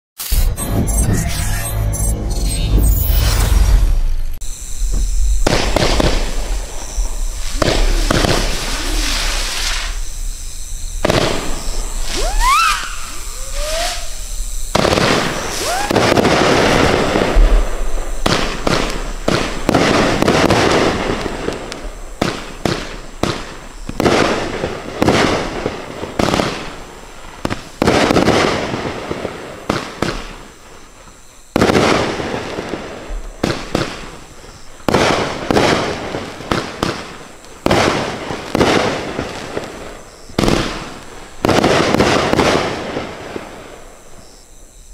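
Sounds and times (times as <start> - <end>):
firework aerial bursts: 0.2 - 1.7, 2.7 - 44.4
rising firework whistles: 0.2 - 44.9
firework launch thumps: 3.4 - 10.2, 14.7 - 24.4.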